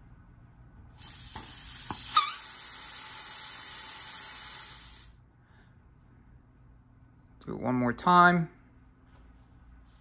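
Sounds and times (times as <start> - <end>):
compressed air hissing: 1.0 - 5.2.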